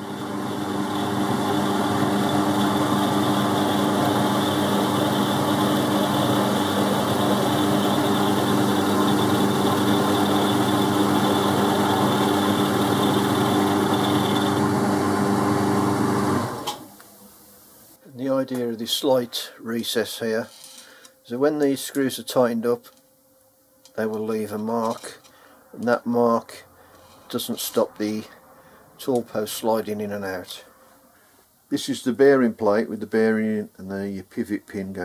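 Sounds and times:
lathe motor and gear hum: 0.0 - 16.9.

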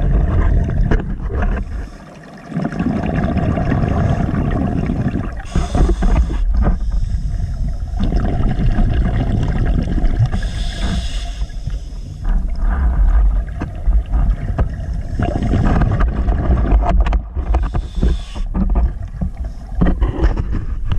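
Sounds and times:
underwater crackling: 0.0 - 20.9
underwater rumble of moving water: 0.0 - 20.9.

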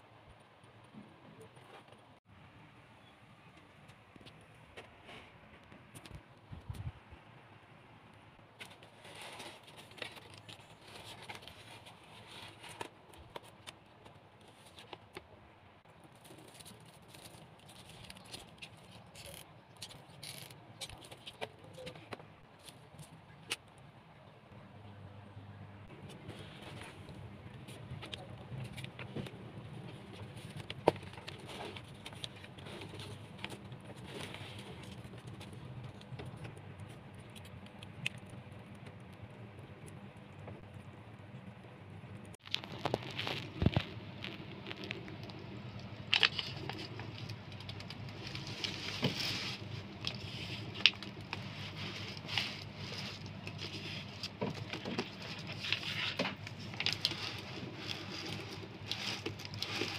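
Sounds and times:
low steady hum: 0.0 - 59.9.

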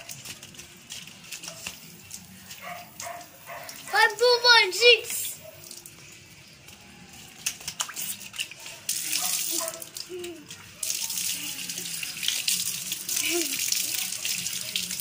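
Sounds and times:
tap water splashing: 7.4 - 10.6.

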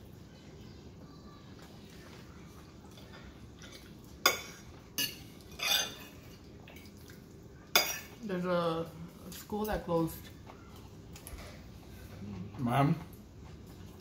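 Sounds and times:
fork clinking on plate: 3.7 - 6.1
fork scraping plate: 5.5 - 6.2.

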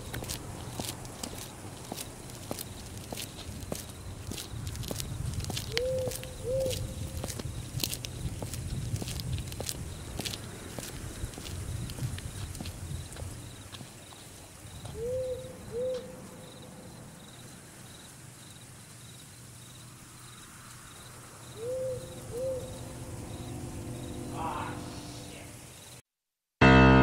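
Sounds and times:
crickets chirping: 0.0 - 26.0
owl hooting: 5.7 - 6.9, 14.9 - 16.2, 21.6 - 25.6
piano music: 22.6 - 25.4, 26.6 - 27.0.

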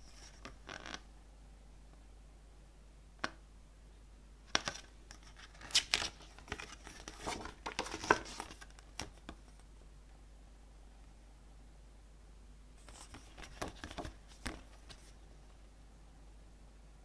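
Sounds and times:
paper pages rustling: 4.5 - 9.6, 12.8 - 15.2.

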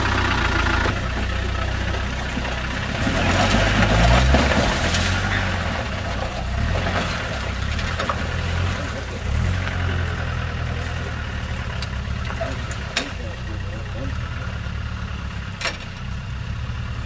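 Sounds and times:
water and mud splashing: 1.0 - 11.6
engine revving under load: 2.0 - 15.8.

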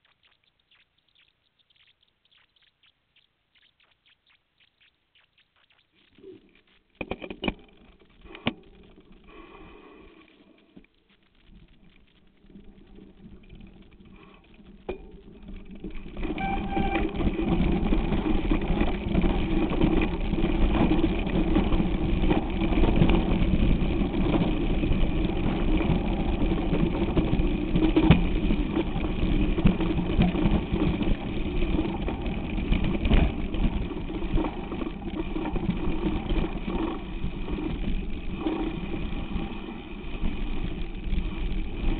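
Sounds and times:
mountain bike rattling over gravel: 11.5 - 41.9.

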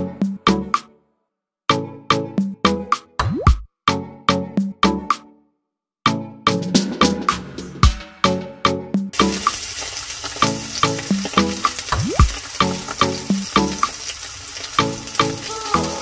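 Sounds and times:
background music with steady beat: 0.0 - 1.0, 1.7 - 5.4, 6.0 - 9.6
steak sizzling in a frying pan: 9.2 - 16.0.

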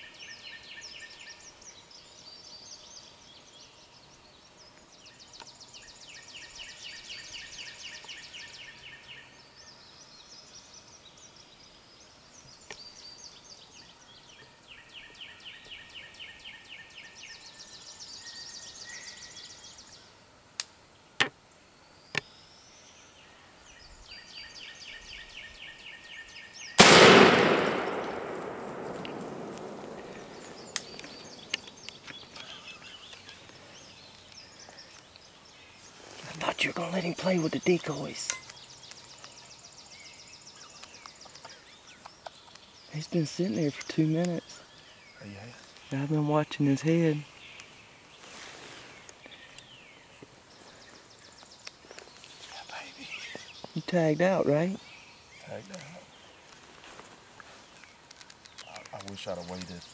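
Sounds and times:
songbirds buzzy trills: 0.0 - 59.9
shotgun blast: 26.8 - 31.1
sharp clicks: 26.8 - 32.2, 57.8 - 59.8.

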